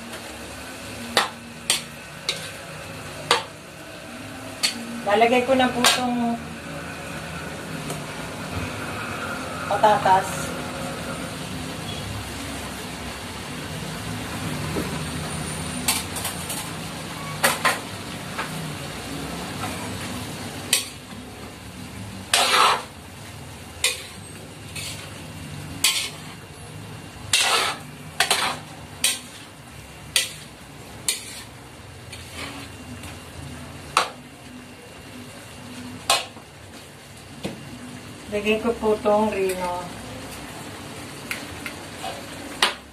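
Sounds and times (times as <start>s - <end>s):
frying sizzle: 0.0s - 42.9s
spatula scraping metal wok: 0.8s - 12.1s, 19.6s - 21.2s, 22.2s - 23.0s, 23.6s - 33.0s, 41.9s - 42.7s.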